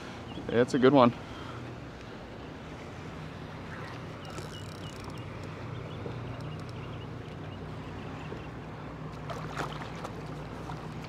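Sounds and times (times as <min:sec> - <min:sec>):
fish splashing in water: 0:09.2 - 0:11.0.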